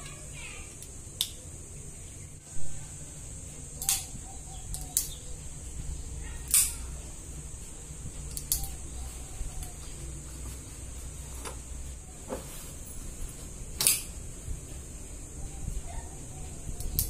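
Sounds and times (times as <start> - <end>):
steady high hiss: 0.0 - 17.0
folding knife blade clicks: 3.8 - 4.1, 6.5 - 6.8, 13.8 - 14.1.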